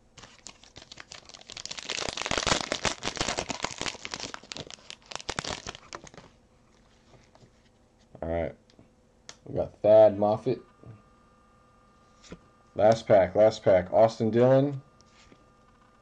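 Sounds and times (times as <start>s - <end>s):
plastic wrapper crinkling: 0.2s - 7.4s.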